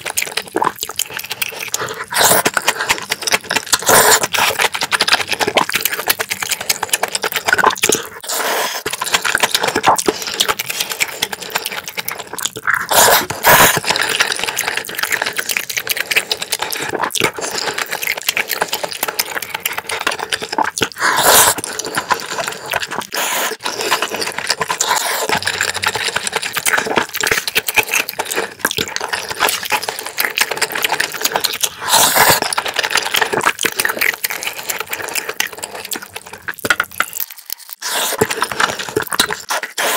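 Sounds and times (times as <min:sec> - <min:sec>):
noodle slurps: 0:00.0 - 0:39.9
wet chewing and lip smacks: 0:00.0 - 0:39.9.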